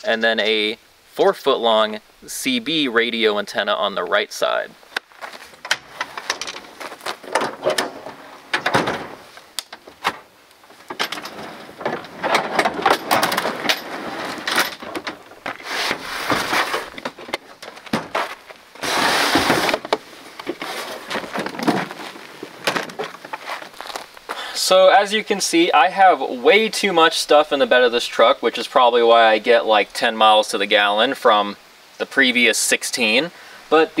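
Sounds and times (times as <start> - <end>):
plastic bins being shifted: 5.2 - 24.2
tailgate dropping: 5.5 - 23.5
drawer sliding out on rails: 10.9 - 17.1, 18.8 - 20.0.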